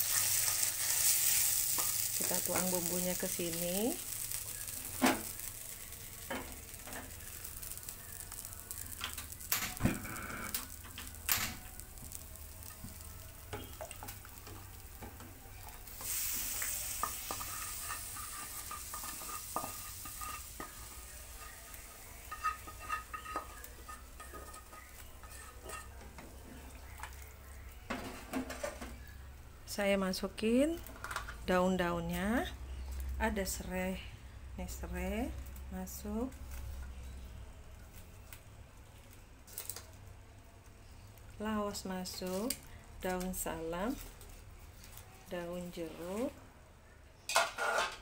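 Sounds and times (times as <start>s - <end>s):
spatula scraping metal pan: 17.0s - 26.0s, 47.3s - 48.0s.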